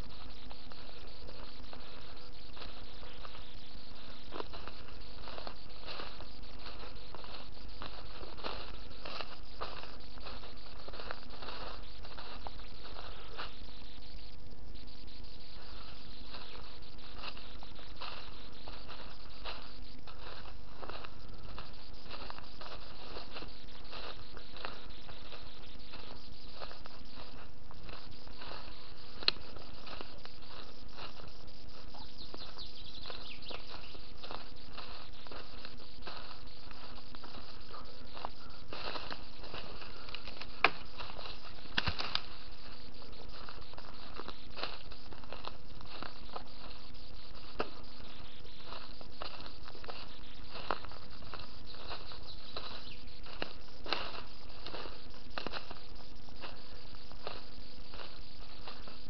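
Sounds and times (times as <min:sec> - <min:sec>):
steady hiss with low hum: 0:00.0 - 0:59.0
twigs and leaves crackling: 0:00.0 - 0:59.0
twigs snapping: 0:38.2 - 0:42.4.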